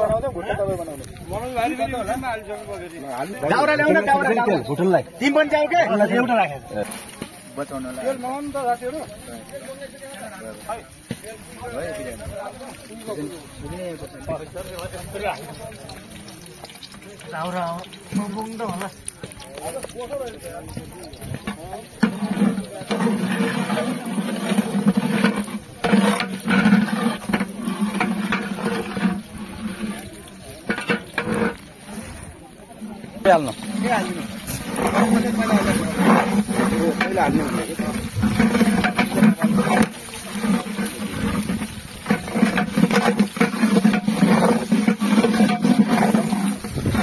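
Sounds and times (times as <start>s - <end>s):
garlic sizzling in hot oil: 0.6s - 47.0s
metal spatula scraping a pot: 21.1s - 32.3s, 33.2s - 47.0s.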